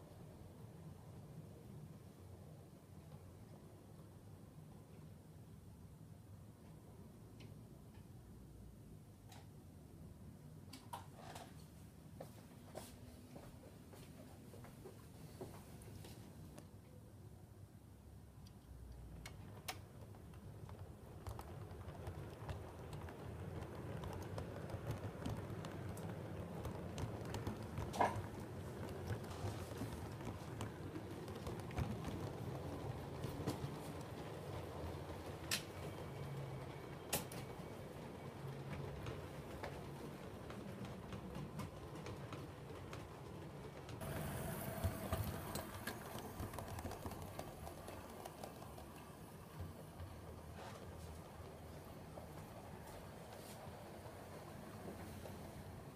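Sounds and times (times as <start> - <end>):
clicking over rail joints: 18.5 - 36.4, 37.0 - 53.7
model train wheels rumbling: 18.7 - 55.9.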